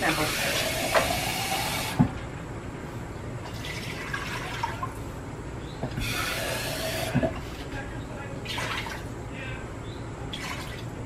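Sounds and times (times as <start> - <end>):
faucet running into cup: 0.0 - 2.0, 6.0 - 7.4.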